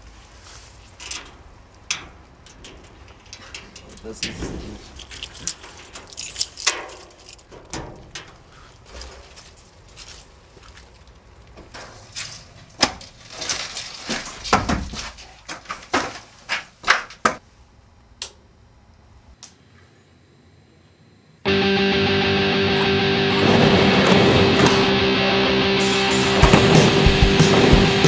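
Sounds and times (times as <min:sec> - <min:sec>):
electric guitar rock music: 0:21.5 - 0:28.0.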